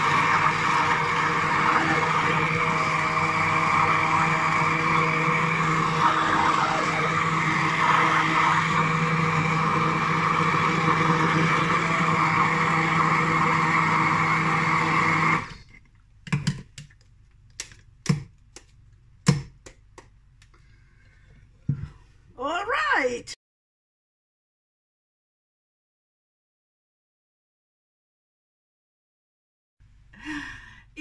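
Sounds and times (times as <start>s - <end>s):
stick blender running: 0.0s - 15.7s.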